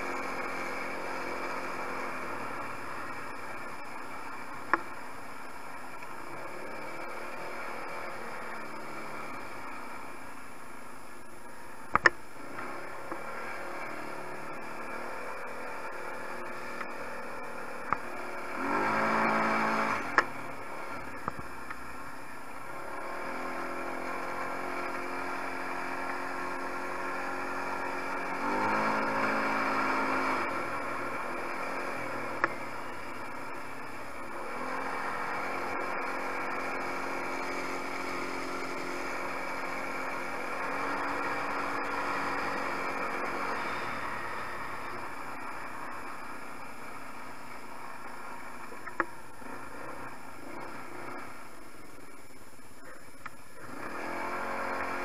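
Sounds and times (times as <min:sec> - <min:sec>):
quad engine revving: 0:00.0 - 0:05.0, 0:05.9 - 0:10.2, 0:11.9 - 0:21.8, 0:22.5 - 0:52.0, 0:53.6 - 0:55.0.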